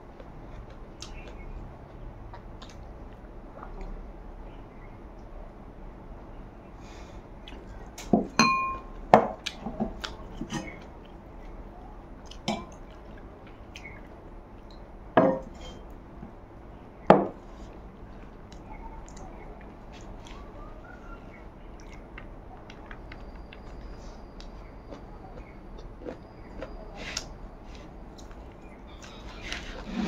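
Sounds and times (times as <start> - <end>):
drinking glass clinking: 8.2 - 8.9, 15.2 - 15.4.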